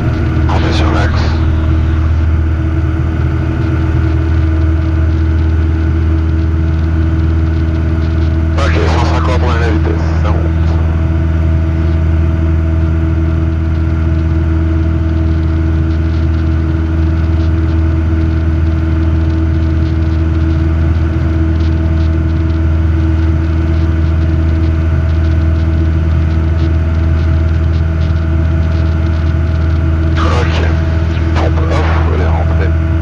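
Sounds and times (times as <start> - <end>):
light aircraft engine drone: 0.0 - 33.0.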